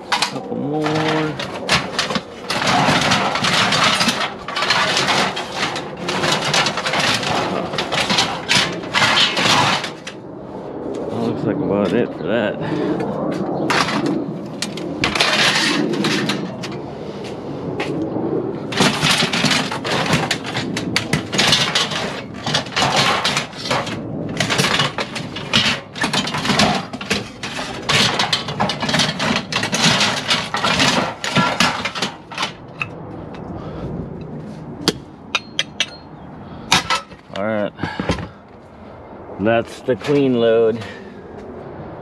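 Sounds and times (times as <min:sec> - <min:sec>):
aluminum lengths clattering and scraping: 0:00.0 - 0:10.2, 0:13.6 - 0:16.9, 0:18.6 - 0:33.5, 0:34.8 - 0:36.1, 0:36.7 - 0:38.4, 0:39.7 - 0:41.0.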